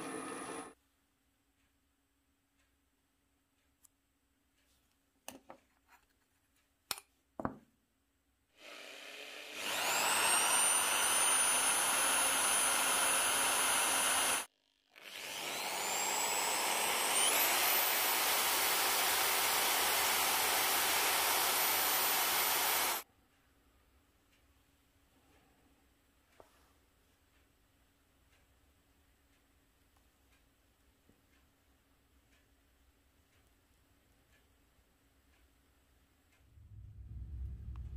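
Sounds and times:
electric drill boring into metal: 0.0 - 0.8, 8.6 - 23.0.

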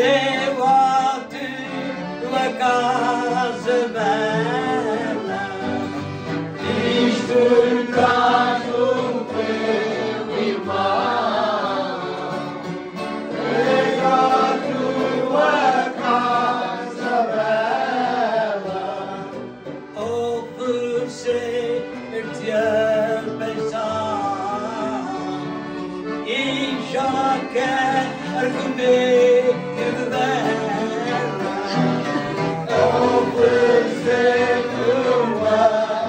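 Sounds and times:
men singing in unison: 0.0 - 6.0, 6.6 - 12.3, 13.4 - 19.4, 26.3 - 36.0
accordion chords: 0.0 - 36.0
strummed acoustic guitar: 0.0 - 36.0.

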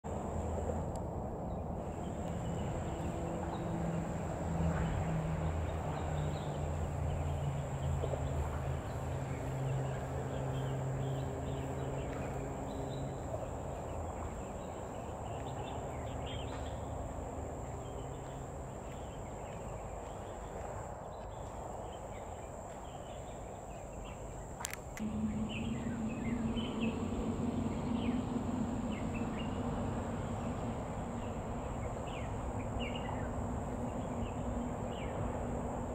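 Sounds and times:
low engine hum: 0.0 - 35.9
high-pitched insect drone: 24.6 - 33.4.

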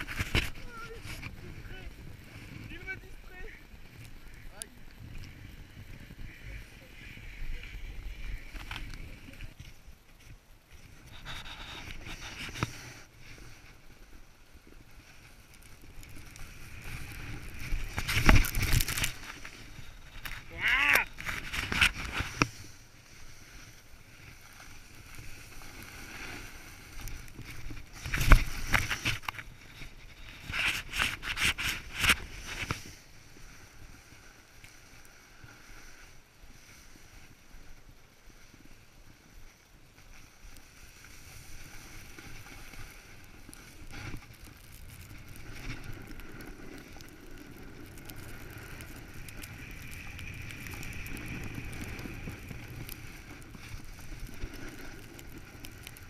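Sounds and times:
snowboard scraping over snow: 0.0 - 56.0.

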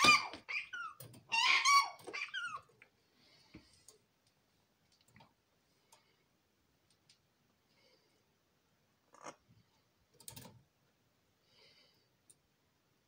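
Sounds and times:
faint clicks and scratches: 9.1 - 10.7.

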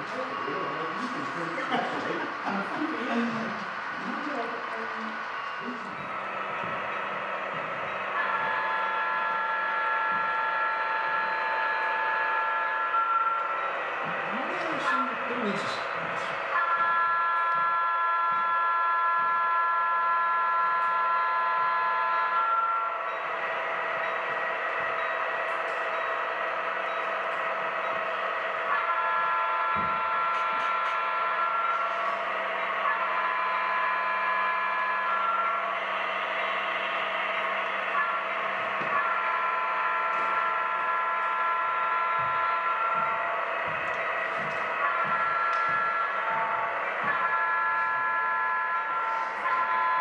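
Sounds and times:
diesel engine hum: 0.0 - 17.1, 22.9 - 49.8
model locomotive horn chord: 7.9 - 24.2, 25.0 - 50.0.

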